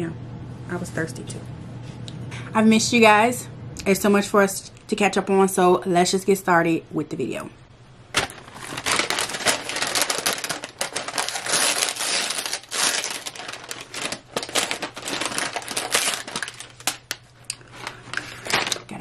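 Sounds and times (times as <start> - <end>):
paper bag crinkling: 8.1 - 19.0.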